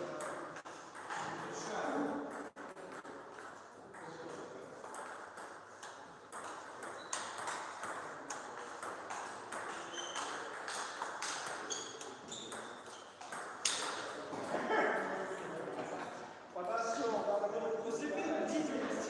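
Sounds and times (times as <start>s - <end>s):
short high squeaks: 9.8s - 10.4s, 11.6s - 13.1s.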